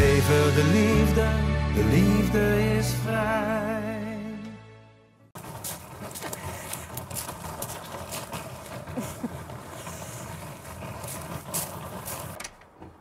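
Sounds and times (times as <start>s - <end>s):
footsteps crunching on gravel: 5.4s - 12.4s
suitcase wheels grinding on gravel: 5.4s - 13.0s.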